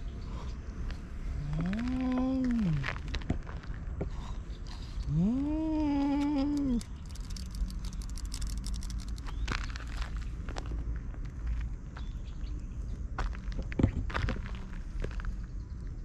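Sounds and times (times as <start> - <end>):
light clicks and rustles: 6.0 - 11.6.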